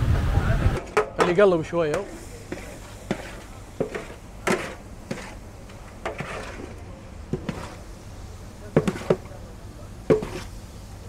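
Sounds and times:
wooden paddle knocking metal pot: 0:00.8 - 0:05.4, 0:08.8 - 0:09.3, 0:10.1 - 0:10.4.

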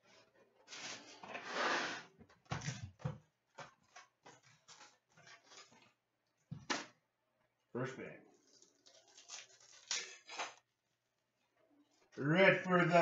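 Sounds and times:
cardboard ripping: 0:08.8 - 0:10.6.

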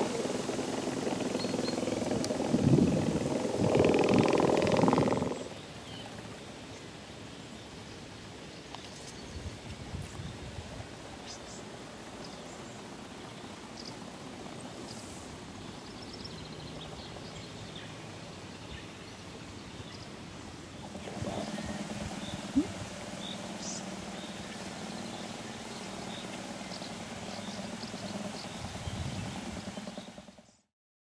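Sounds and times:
vibration motor buzzing: 0:00.0 - 0:05.5
birds chirping: 0:00.0 - 0:07.9, 0:15.6 - 0:30.6.

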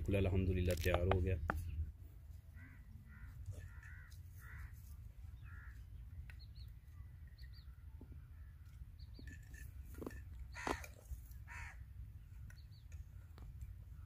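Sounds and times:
small birds chirping: 0:00.0 - 0:14.0
crows cawing: 0:02.5 - 0:05.8, 0:10.5 - 0:11.8.

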